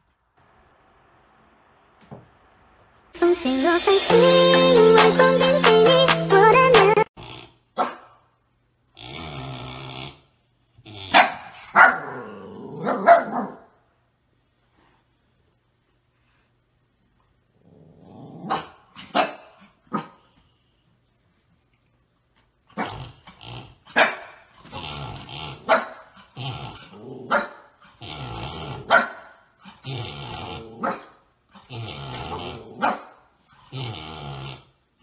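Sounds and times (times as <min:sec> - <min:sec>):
puppy barking and growling: 0:07.7 - 0:08.2, 0:10.9 - 0:13.8, 0:17.7 - 0:20.2, 0:22.7 - 0:33.3.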